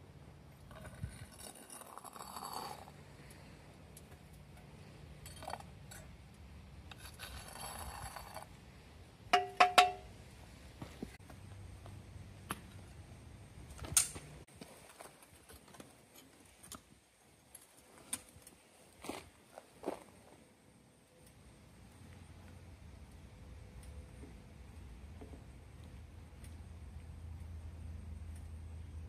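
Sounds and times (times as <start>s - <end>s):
metal spoon scraping crucible: 0.7s - 3.3s, 6.8s - 8.5s.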